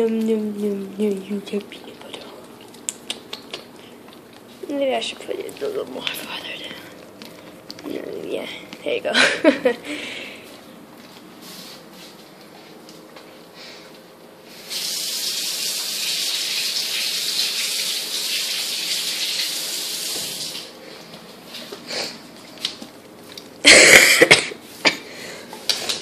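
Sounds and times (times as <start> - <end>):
water running from tap: 14.6 - 20.7.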